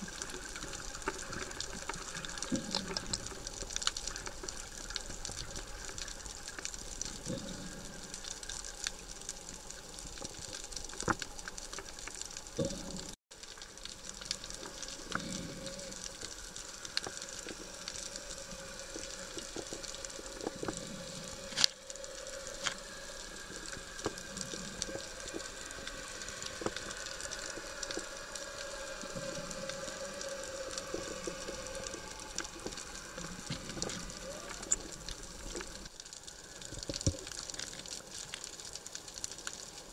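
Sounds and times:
underwater crackling hiss: 0:00.0 - 0:39.9
faint steady drone: 0:12.6 - 0:36.8.

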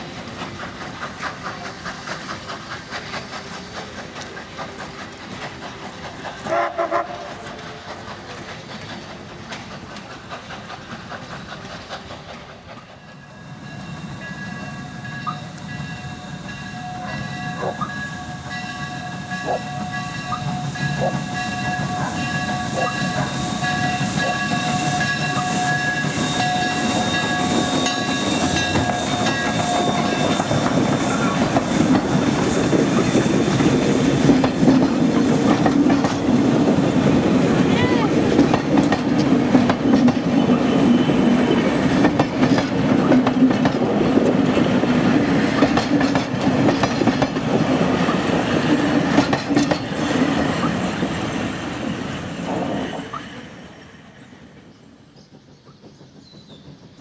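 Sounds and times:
steam locomotive chuffing: 0:00.0 - 0:57.0
train rumble: 0:00.0 - 0:57.0
steam whistle: 0:06.4 - 0:07.4.

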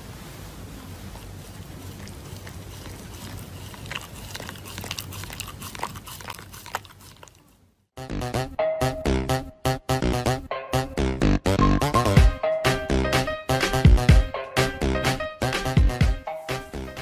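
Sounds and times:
puppy chewing and crunching: 0:00.7 - 0:07.7.

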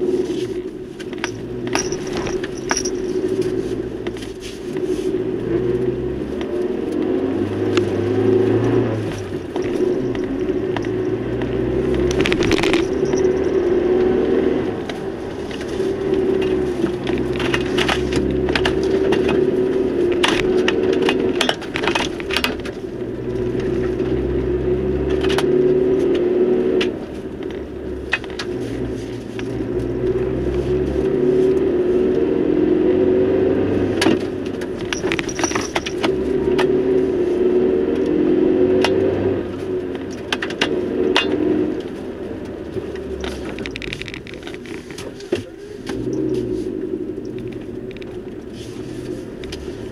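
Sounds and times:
vehicle engine running: 0:00.0 - 0:49.9
sharp clicks and rattles: 0:01.0 - 0:04.3, 0:06.4 - 0:24.2, 0:34.0 - 0:36.8, 0:39.9 - 0:48.6.

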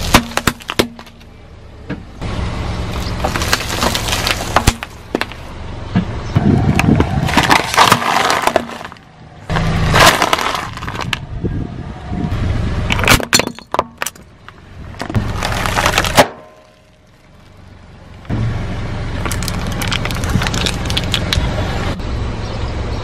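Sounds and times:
tyre crushing plastic objects: 0:00.0 - 0:01.2, 0:03.2 - 0:05.4, 0:06.8 - 0:11.2, 0:15.0 - 0:16.9, 0:19.2 - 0:21.4.

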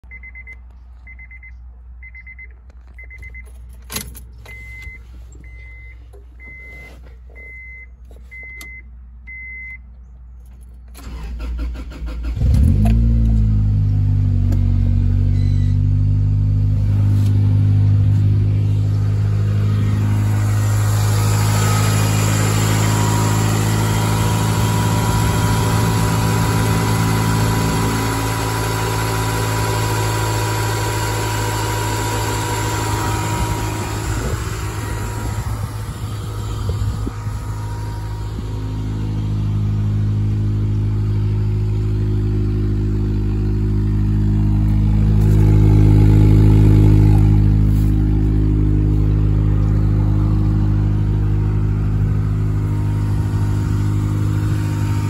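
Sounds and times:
dashboard warning chime beeping: 0:00.1 - 0:03.6, 0:04.4 - 0:09.8
car engine idling: 0:10.4 - 0:55.0
car engine starter cranking: 0:10.9 - 0:13.4.

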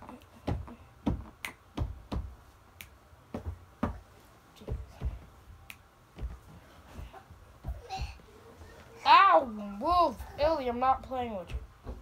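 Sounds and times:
soft thumps: 0:03.3 - 0:05.4, 0:06.1 - 0:08.3.

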